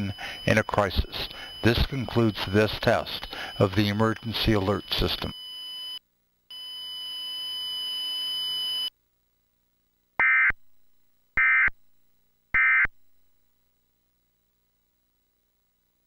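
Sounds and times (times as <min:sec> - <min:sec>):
steady hiss: 0:00.0 - 0:05.3
shrill digital data bursts: 0:00.0 - 0:08.9.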